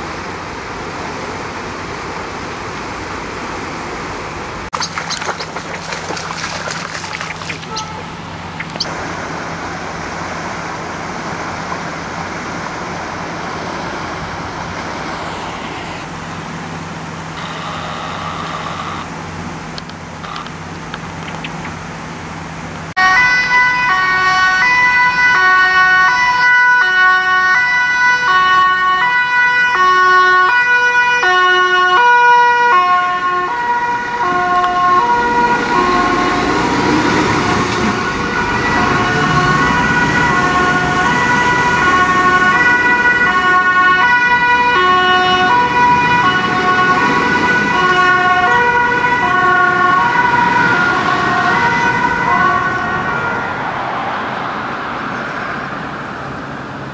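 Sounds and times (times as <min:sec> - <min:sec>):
traffic noise: 0:00.0 - 0:56.9
fire engine two-tone siren: 0:17.2 - 0:19.1, 0:22.9 - 0:54.9.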